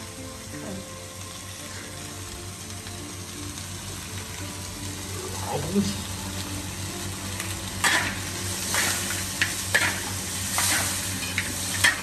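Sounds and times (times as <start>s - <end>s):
food sizzling in hot oil: 0.0s - 12.0s
metal spatula scraping wok: 7.8s - 12.0s.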